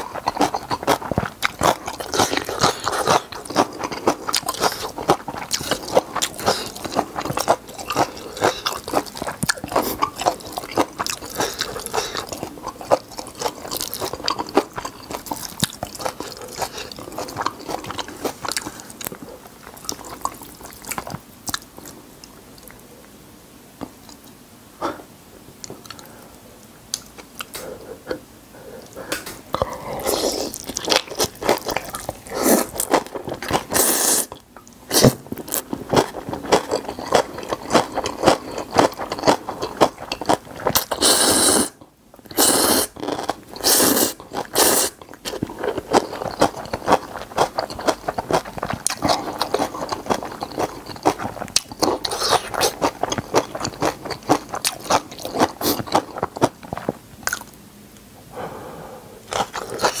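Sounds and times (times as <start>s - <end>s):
wet chewing of noodles: 0.0s - 22.8s, 28.8s - 57.6s, 59.2s - 60.0s
loud noodle slurps: 33.7s - 34.3s, 40.8s - 41.8s, 42.4s - 43.0s, 43.6s - 45.0s.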